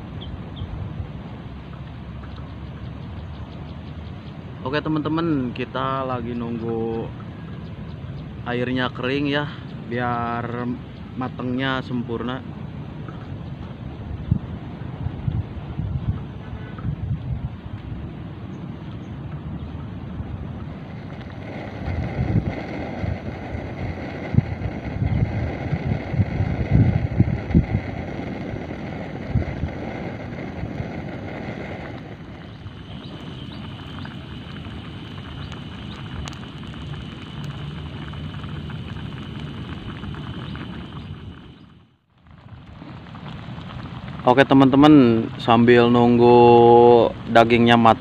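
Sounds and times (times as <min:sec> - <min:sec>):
wind buffeting microphone: 0:00.0 - 0:48.0
steady hiss: 0:20.6 - 0:41.7, 0:42.5 - 0:48.0.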